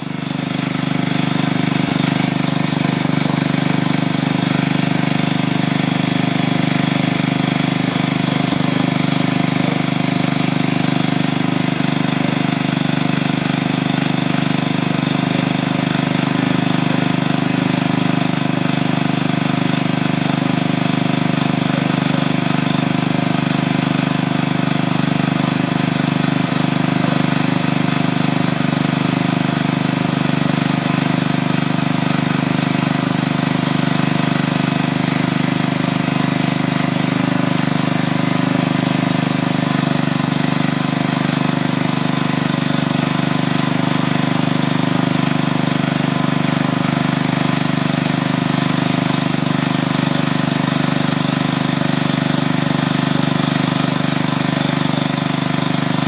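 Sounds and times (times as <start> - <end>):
lawn mower engine running: 0.0 - 56.0.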